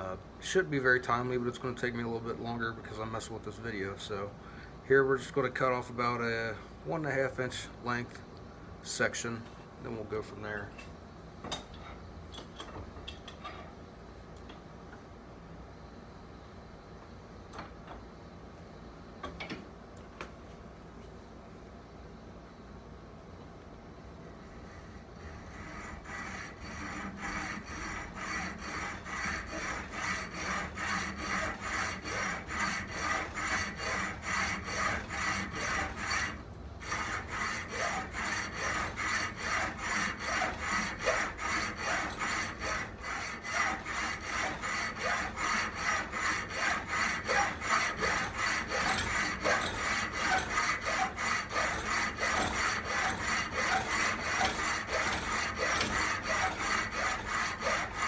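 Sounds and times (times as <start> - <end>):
hacksaw cutting metal: 25.4 - 58.0.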